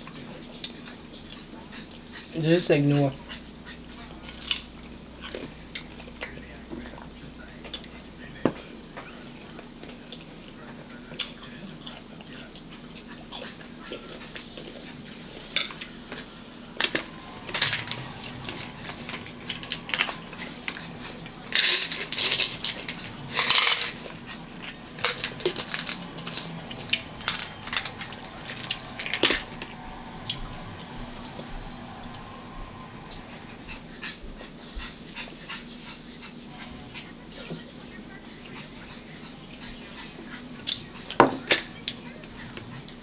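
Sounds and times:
crisp crunches of eating: 3.7 - 7.0.

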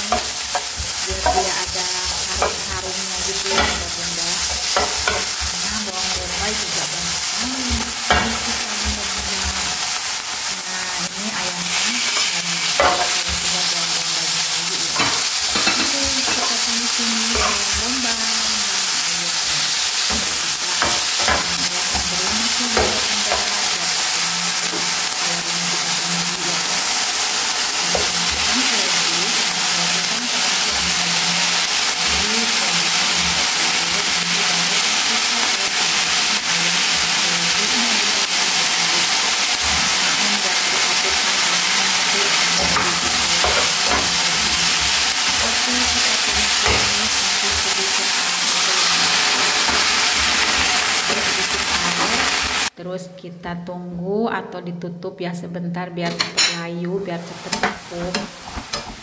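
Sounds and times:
spatula scraping and tapping pan: 0.0 - 10.0, 11.7 - 13.7, 14.9 - 18.4, 20.0 - 24.0, 27.8 - 36.1, 39.2 - 52.7, 57.4 - 59.0
food sizzling in frying pan: 0.0 - 52.8, 56.4 - 59.0.

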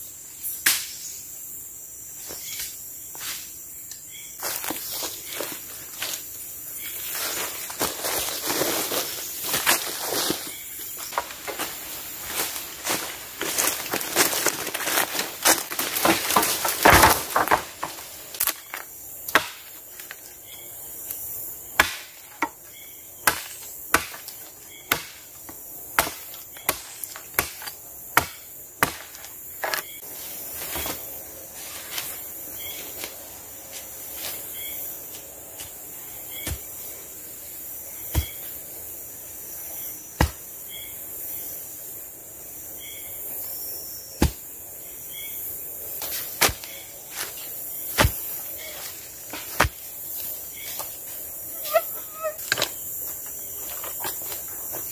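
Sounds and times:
high insect drone: 0.0 - 54.9
undergrowth rustling: 4.3 - 54.9
blade chopping wooden pole: 19.3 - 19.7, 21.8 - 22.5, 23.2 - 25.2, 26.0 - 29.8, 47.9 - 48.3.

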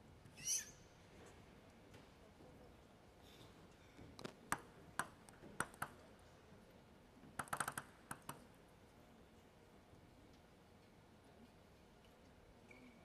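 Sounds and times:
table tennis ball clicking: 4.5 - 6.0, 7.4 - 8.4.

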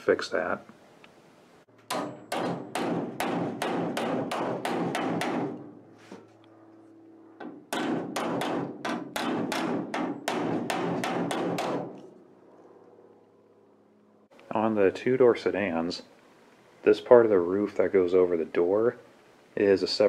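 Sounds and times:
hammer striking metal: 1.8 - 5.7, 7.4 - 12.0.

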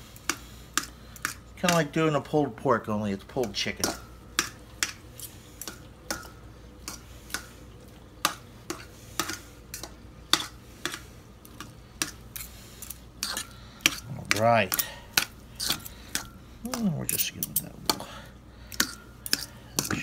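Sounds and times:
forks clinking on metal bowl: 13.2 - 20.0.

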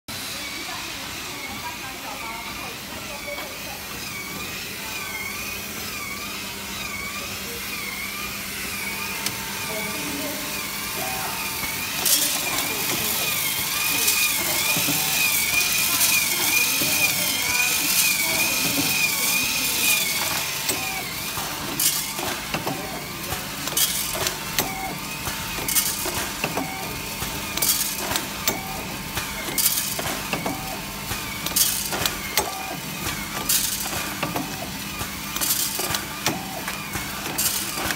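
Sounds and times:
packing machine humming: 0.1 - 37.9
chocolate beans rattling in feed: 11.1 - 24.6, 29.3 - 37.9.

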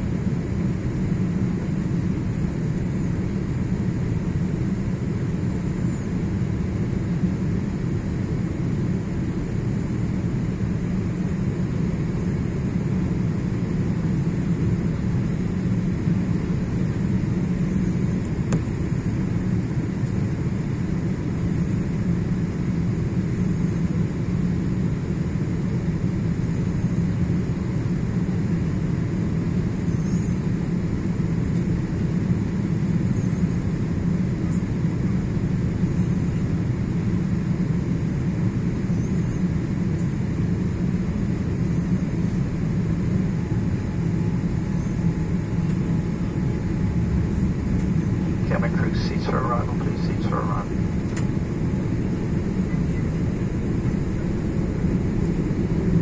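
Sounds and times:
jet airliner cabin rumble: 0.0 - 56.0.

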